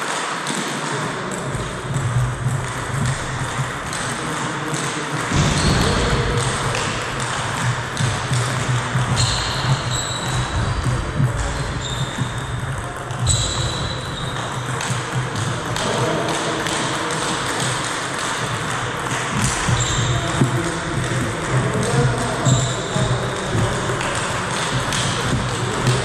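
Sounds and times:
steady background noise: 0.0 - 26.0
table tennis ball clicking: 6.0 - 26.0.

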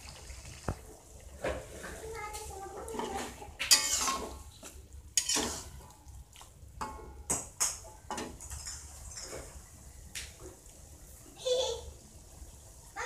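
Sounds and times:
faint sizzle: 0.0 - 13.0
metal spatula scraping a wok: 2.9 - 4.5, 5.2 - 5.9.

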